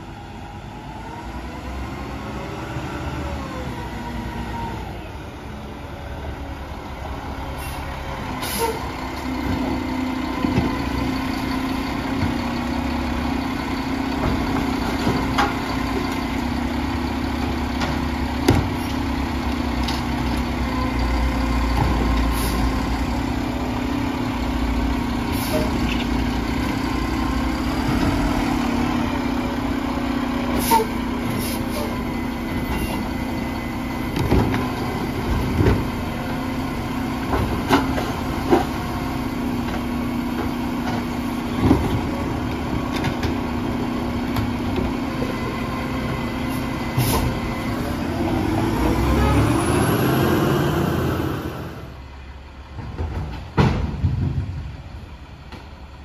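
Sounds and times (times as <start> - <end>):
clunks and bangs of bins: 9.4 - 10.9, 14.0 - 16.2, 17.4 - 19.0, 21.7 - 22.5, 34.0 - 46.2, 46.9 - 48.8, 52.6 - 55.7.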